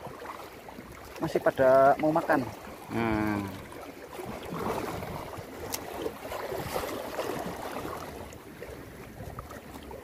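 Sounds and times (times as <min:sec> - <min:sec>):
sea water lapping on rocks: 0:00.0 - 0:10.0
wind on microphone: 0:04.2 - 0:10.0.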